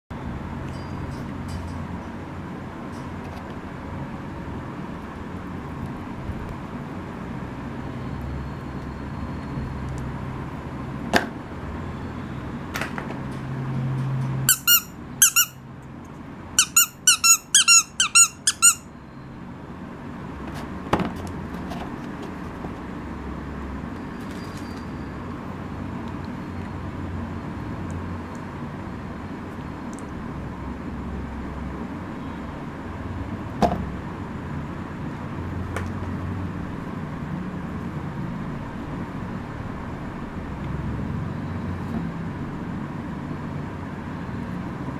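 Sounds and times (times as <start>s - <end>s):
rubber duck toy squeaking: 14.5s - 15.6s, 16.6s - 18.9s.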